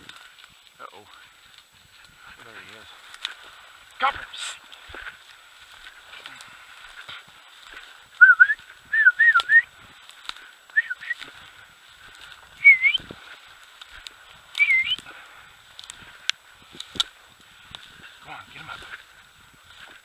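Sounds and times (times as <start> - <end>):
person whistling: 8.2 - 9.7, 10.7 - 11.2, 12.6 - 13.0, 14.6 - 15.0.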